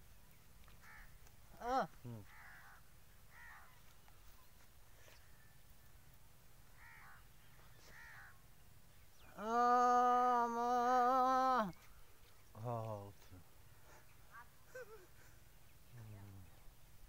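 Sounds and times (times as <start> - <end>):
crows cawing: 0.8 - 1.2, 2.2 - 3.8, 6.8 - 7.2, 7.8 - 8.4.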